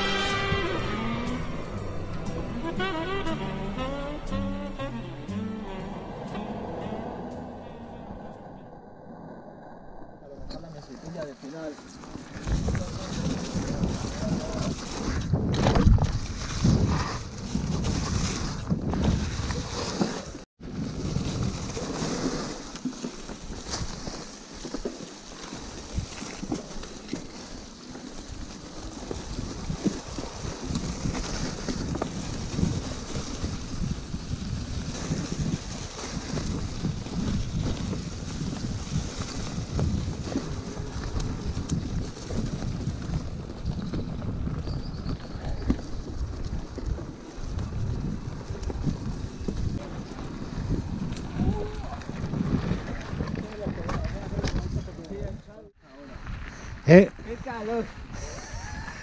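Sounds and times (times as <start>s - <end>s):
mountain bike rumble and rattle: 0.0s - 59.0s
wind buffeting microphone: 12.2s - 19.8s, 28.2s - 59.0s.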